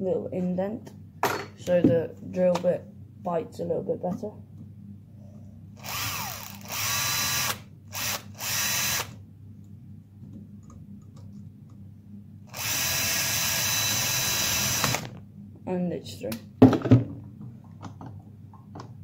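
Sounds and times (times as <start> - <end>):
cordless drill drilling: 5.8 - 9.2, 12.5 - 15.2.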